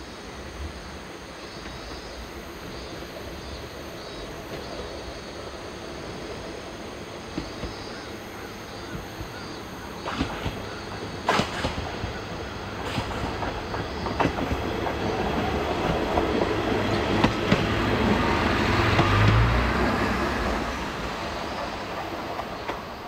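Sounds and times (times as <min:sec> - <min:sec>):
diesel railcar engine rumble: 0:00.0 - 0:23.0
wheels clicking over rail joints: 0:08.7 - 0:19.9.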